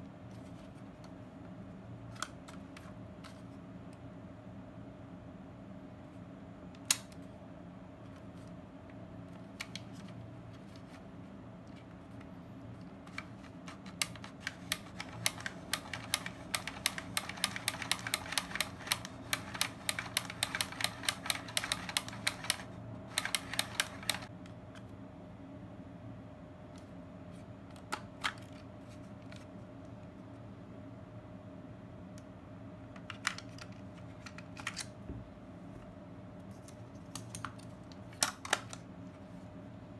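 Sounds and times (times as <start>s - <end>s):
film camera rewind ratchet clicks: 14.0s - 24.3s.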